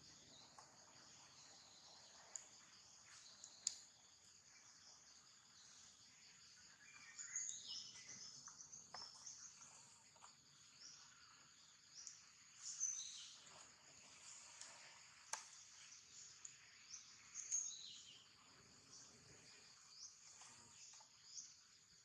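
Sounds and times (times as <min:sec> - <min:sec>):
faint high-pitched insect chorus: 0:00.0 - 0:22.0
short insect chirps: 0:00.0 - 0:22.0.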